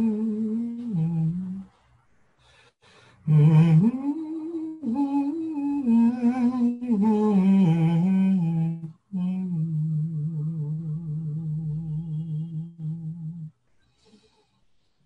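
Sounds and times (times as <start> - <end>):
man breathing: 1.7 - 3.3, 13.7 - 15.0.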